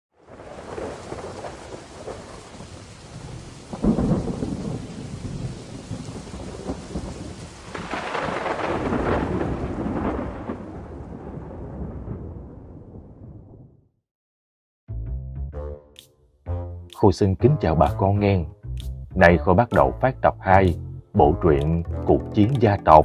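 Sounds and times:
steady rain: 0.2s - 12.5s
rolling thunder rumble: 0.2s - 13.8s
thunderclap: 0.2s - 13.8s.

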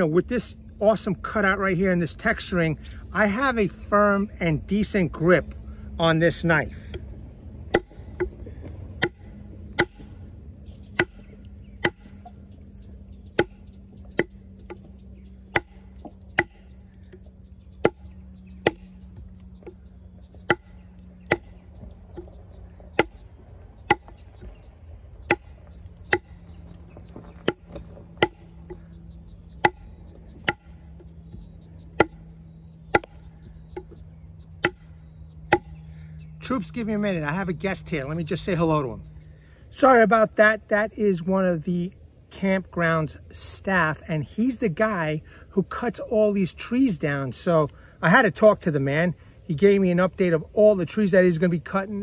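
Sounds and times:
blade chopping into log: 7.7s - 8.4s, 9.0s - 10.1s, 11.0s - 12.2s, 13.4s - 14.9s, 15.5s - 16.7s, 17.8s - 18.9s, 20.4s - 21.5s, 23.0s - 23.2s, 23.9s - 24.5s, 25.2s - 26.4s, 27.4s - 28.8s, 29.6s - 30.8s, 32.0s - 32.2s, 32.9s - 33.2s, 34.6s - 34.9s, 35.5s - 35.8s.

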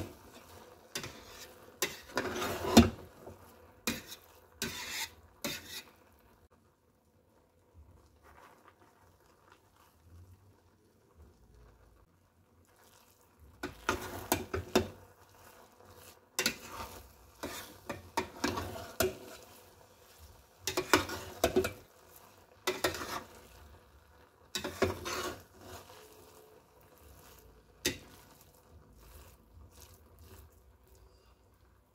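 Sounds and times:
metal spoon scraping a steel pot: 0.0s - 6.0s, 13.6s - 15.0s, 15.9s - 21.9s, 22.6s - 23.7s, 24.5s - 31.4s.

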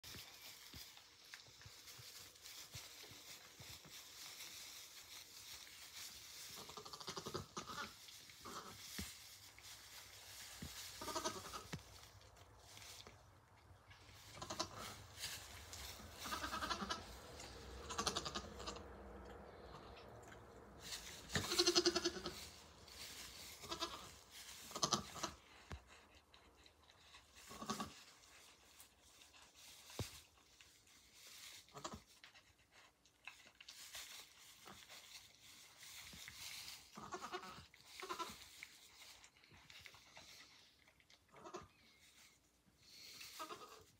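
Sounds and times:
goat kids bleating: 6.5s - 8.9s, 10.7s - 11.9s, 14.2s - 15.2s, 15.9s - 18.9s, 21.1s - 25.4s, 27.4s - 28.0s, 36.9s - 38.4s, 41.3s - 41.8s, 43.3s - 43.9s.

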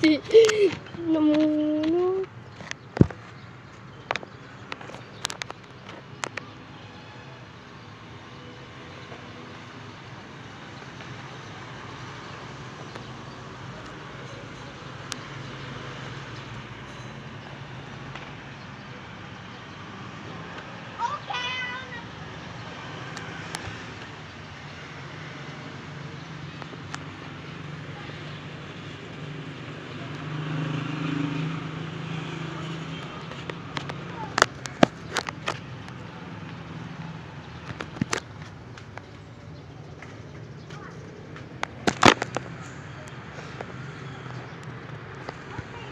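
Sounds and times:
vehicle engine passing: 21.8s - 45.9s.

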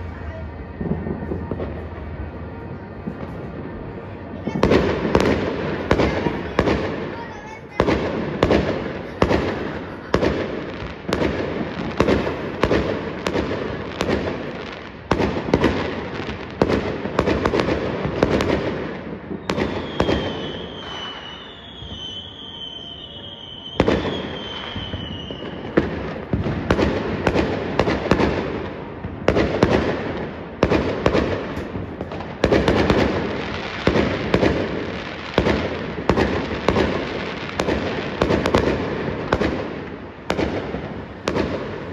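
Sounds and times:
fireworks bangs and crackles: 0.0s - 41.9s
high wavering whistle: 19.8s - 25.6s.

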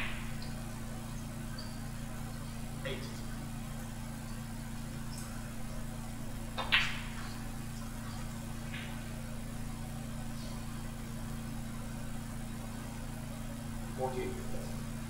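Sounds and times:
low room hum: 0.0s - 15.0s
cue tip tapping ball: 6.5s - 7.4s, 8.6s - 9.2s
snooker balls clacking: 6.6s - 7.2s.

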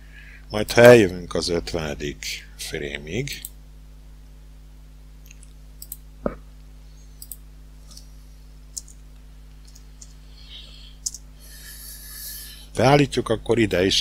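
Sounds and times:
low electrical hum: 0.0s - 14.0s
computer input device clicks: 5.8s - 6.0s, 7.2s - 7.4s.

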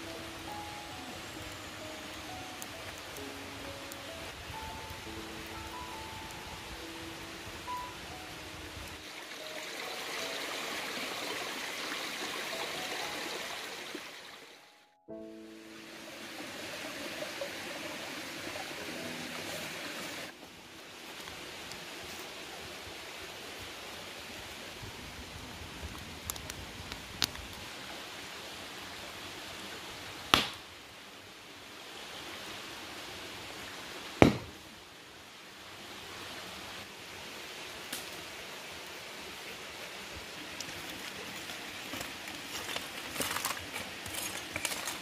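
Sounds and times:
fire crackling pops: 1.5s - 6.4s, 25.8s - 27.7s, 30.2s - 30.7s, 34.2s - 34.6s, 37.8s - 38.3s
rock exploding with loud bangs: 34.2s - 34.6s.

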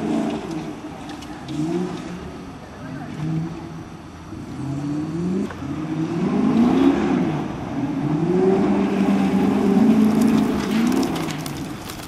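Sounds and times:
off-road vehicle engine revving: 0.0s - 12.0s.

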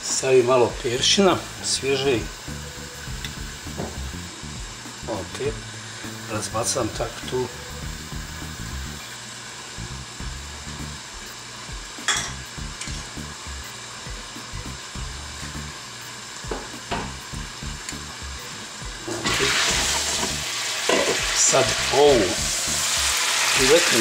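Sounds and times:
food sizzling in a frying pan: 0.0s - 24.0s.

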